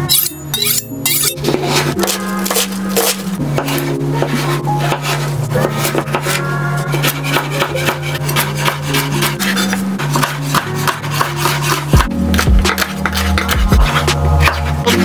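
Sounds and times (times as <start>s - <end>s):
background music with bass: 0.0s - 15.0s
knife chopping on cutting board: 7.0s - 14.6s.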